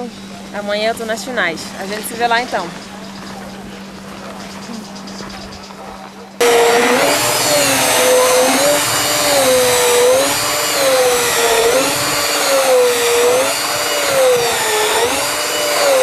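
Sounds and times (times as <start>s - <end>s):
cordless drill motor whine: 6.4s - 16.0s.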